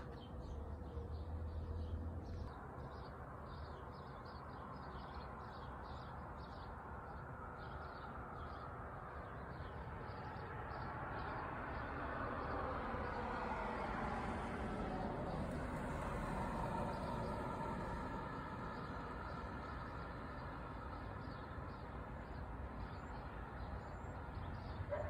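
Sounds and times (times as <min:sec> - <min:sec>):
street traffic: 0:00.0 - 0:25.0
vehicle approaching: 0:06.5 - 0:22.4.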